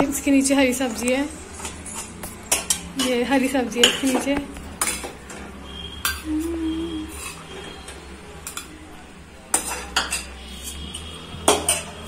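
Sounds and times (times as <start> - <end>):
metal spoon scraping a steel pan: 6.0 - 6.3, 7.0 - 8.8, 9.5 - 12.0.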